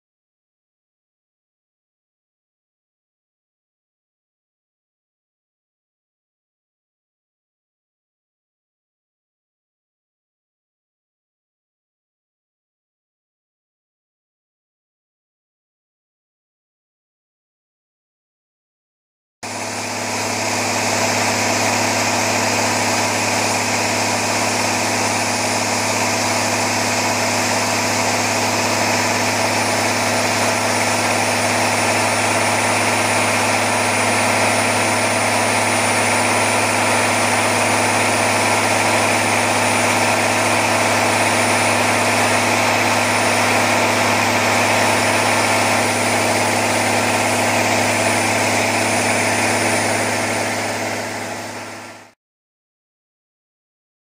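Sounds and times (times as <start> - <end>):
turbocharger whine: 19.4 - 52.2
diesel engine running: 19.5 - 52.1.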